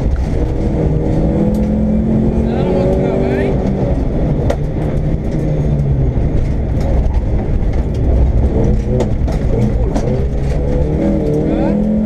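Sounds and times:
car engine running hard: 0.0s - 12.0s
road rumble: 0.0s - 12.0s
sharp knocks from rough road: 6.3s - 11.4s.

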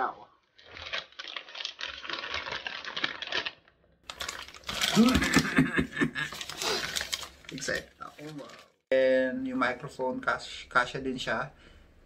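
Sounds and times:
plastic wrapping crinkling: 0.4s - 8.8s.

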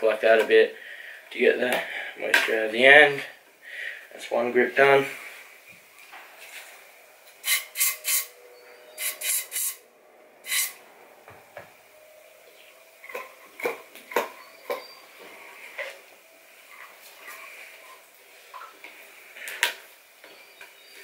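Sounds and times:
aerosol spray hissing: 7.4s - 8.4s, 9.0s - 9.8s, 10.5s - 10.8s.

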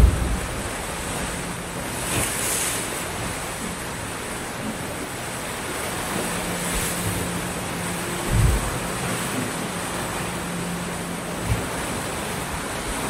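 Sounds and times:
waves washing up a beach: 0.0s - 13.0s.

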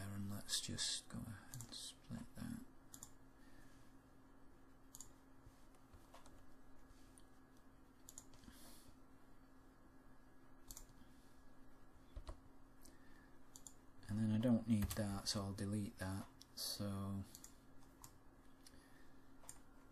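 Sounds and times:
steady low hum: 0.0s - 19.9s
computer mouse clicks: 1.5s - 1.8s, 2.9s - 3.2s, 4.9s - 5.2s, 8.0s - 8.5s, 10.6s - 11.0s, 12.1s - 13.8s, 17.3s - 18.8s, 19.4s - 19.7s.

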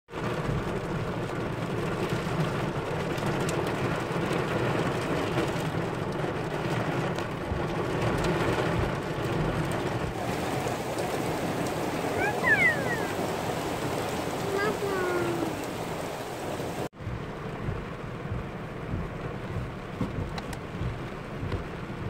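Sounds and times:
heavy rain pouring: 0.1s - 22.0s.

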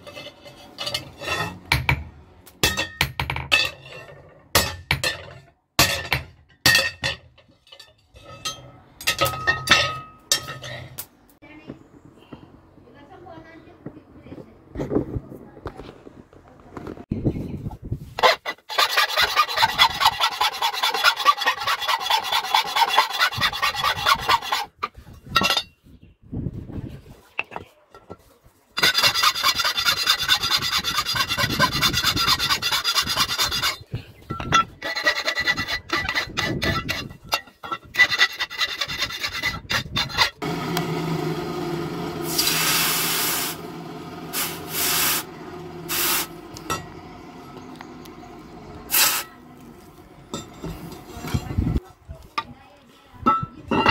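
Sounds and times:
file rasping on metal blade: 18.2s - 24.8s, 28.8s - 33.9s, 34.8s - 40.4s
hot metal hissing in water: 42.2s - 43.6s, 44.3s - 45.3s, 45.9s - 46.3s, 48.9s - 49.3s
steady low hum: 43.1s - 51.8s.

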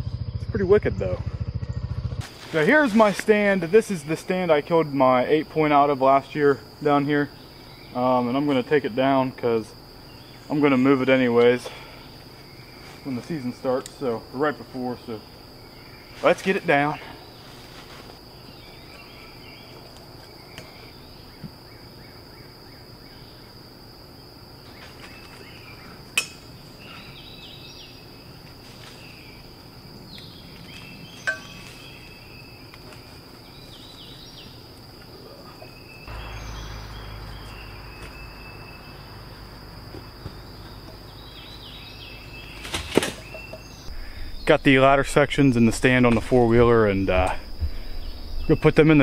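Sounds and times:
insects droning: 0.0s - 49.0s
low rumble: 43.9s - 49.0s.

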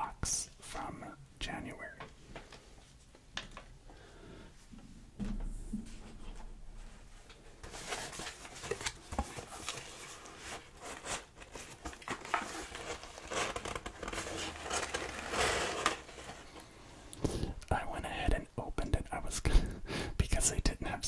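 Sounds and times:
paper packaging rustling: 7.6s - 16.7s.

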